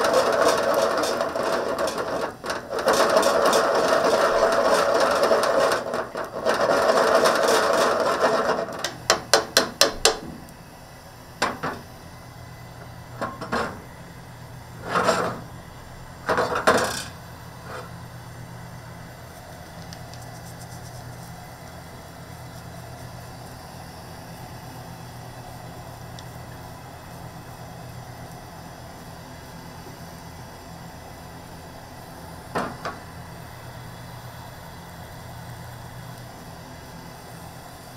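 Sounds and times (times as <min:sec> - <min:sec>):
knocks and clatters: 0:00.0 - 0:10.5, 0:11.4 - 0:11.9, 0:13.2 - 0:13.9, 0:14.8 - 0:15.5, 0:16.3 - 0:17.9, 0:32.5 - 0:33.0
range hood fan hum: 0:00.0 - 0:37.9.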